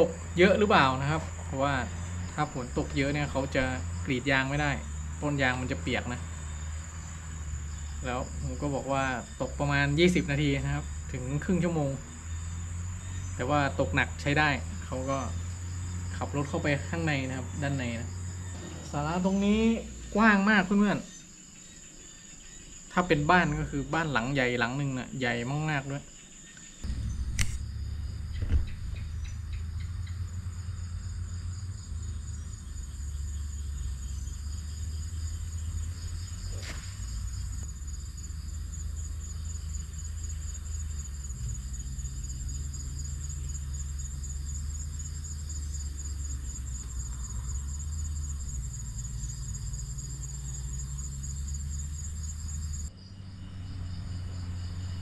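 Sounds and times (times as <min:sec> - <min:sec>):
insects trilling: 0:00.0 - 0:55.0
low rumble: 0:26.8 - 0:41.8.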